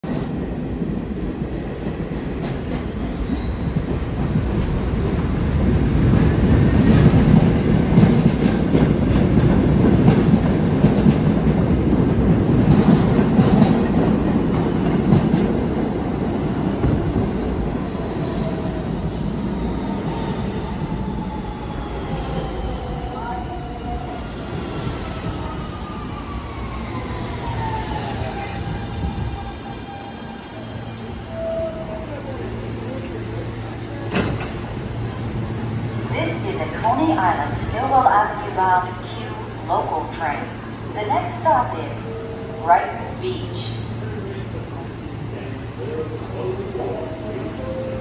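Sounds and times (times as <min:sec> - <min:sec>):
train wheels rumbling and clacking: 0:00.0 - 0:38.2.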